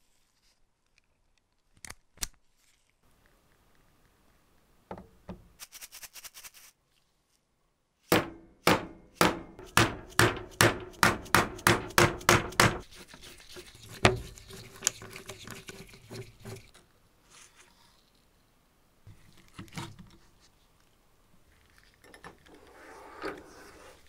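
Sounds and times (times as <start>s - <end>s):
mallet striking impact driver: 8.1s - 12.8s.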